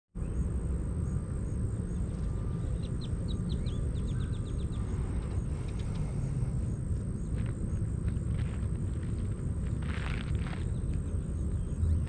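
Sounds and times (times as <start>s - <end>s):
small bird chirping: 0.2s - 8.0s
steady low rumble: 0.2s - 12.0s.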